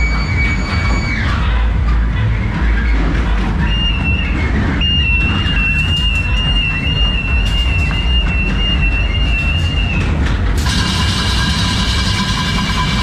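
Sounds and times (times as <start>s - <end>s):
ride car rumbling on track: 0.0s - 13.0s
harsh buzzing high sound: 10.6s - 13.0s
steady high-pitched tone: 10.6s - 13.0s.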